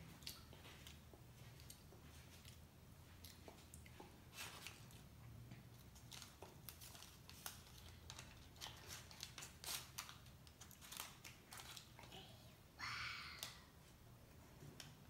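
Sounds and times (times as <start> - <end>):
paper wrapper crinkling: 5.8 - 12.1.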